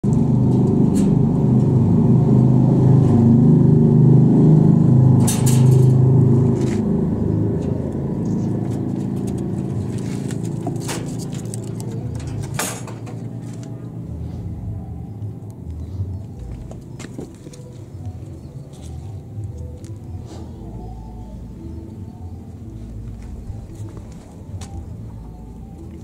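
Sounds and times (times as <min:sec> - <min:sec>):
low engine-like rumble: 0:00.0 - 0:26.0
sharp knocks and rattles: 0:08.7 - 0:13.4.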